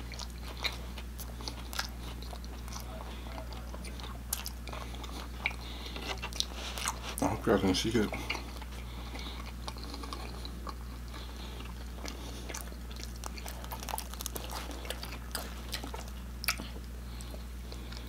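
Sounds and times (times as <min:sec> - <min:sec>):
soft chewing: 0:00.0 - 0:18.0
steady low hum: 0:00.0 - 0:18.0
pizza tearing crackles: 0:09.2 - 0:16.8.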